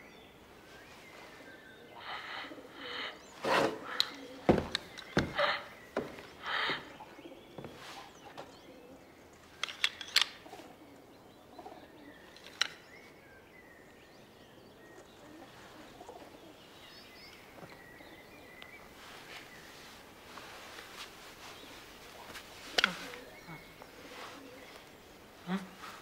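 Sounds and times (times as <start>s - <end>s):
pigeons cooing: 1.2s - 9.2s, 10.4s - 12.3s, 14.7s - 20.7s, 21.3s - 26.0s
sharp clicks: 9.6s - 10.4s, 12.3s - 12.8s.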